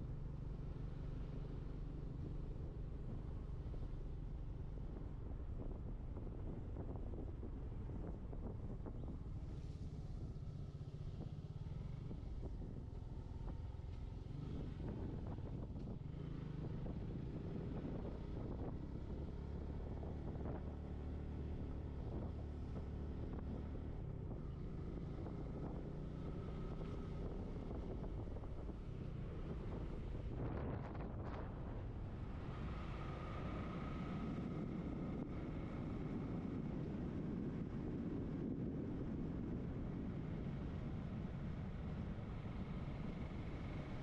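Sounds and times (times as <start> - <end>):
wind on microphone: 27.2 - 33.2.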